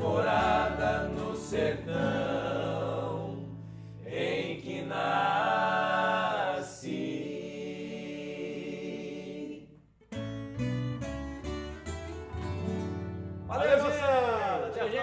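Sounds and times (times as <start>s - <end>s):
acoustic guitars playing: 0.0s - 7.2s, 7.8s - 15.0s
men singing: 0.0s - 9.7s.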